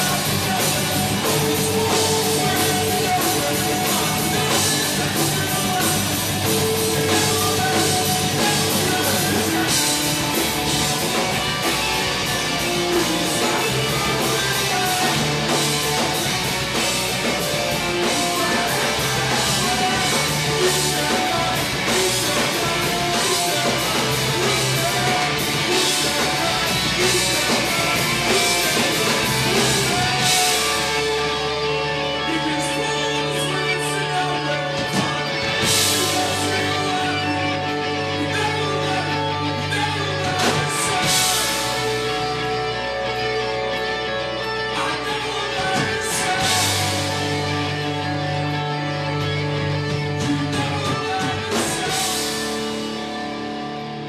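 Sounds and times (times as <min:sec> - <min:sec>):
drum kit beat: 0:00.0 - 0:31.8, 0:34.2 - 0:37.3, 0:39.7 - 0:42.2, 0:45.6 - 0:47.8, 0:49.8 - 0:53.4
bass guitar: 0:00.0 - 0:54.0
electric guitars: 0:00.0 - 0:54.0.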